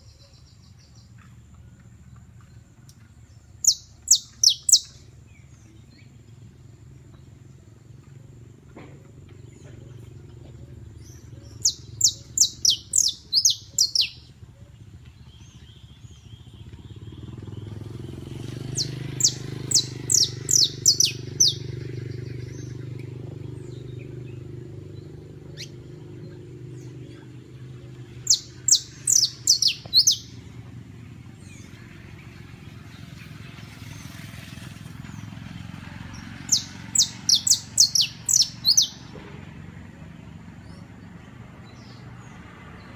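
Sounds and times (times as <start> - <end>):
low steady rumble: 0.0 - 42.9
finch singing sharp chirps: 3.6 - 5.1, 11.0 - 14.3, 18.7 - 22.8, 28.1 - 30.5, 36.1 - 39.1.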